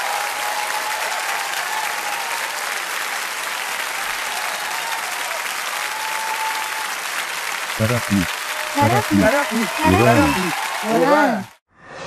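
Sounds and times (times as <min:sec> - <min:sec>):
crowd applauding: 0:00.0 - 0:11.6
faint cheering voices: 0:07.8 - 0:11.6.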